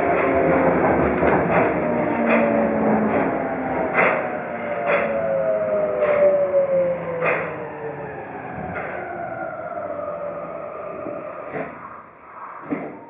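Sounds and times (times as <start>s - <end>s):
subway motor whine: 0.0s - 13.0s
wheel clacks over rail joints: 0.1s - 5.2s.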